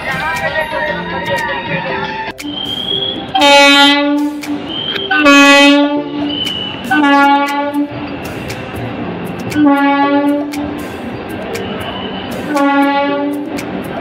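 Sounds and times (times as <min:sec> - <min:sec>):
train horn blasts: 0:01.6 - 0:08.0, 0:09.6 - 0:10.5, 0:11.9 - 0:13.5.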